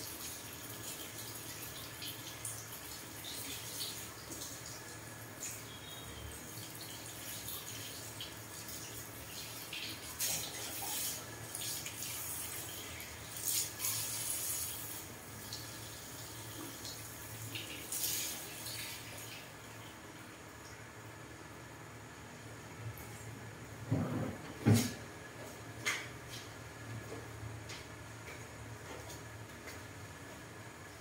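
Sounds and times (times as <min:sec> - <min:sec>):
shower sprayer water splashing: 0:06.4 - 0:19.6.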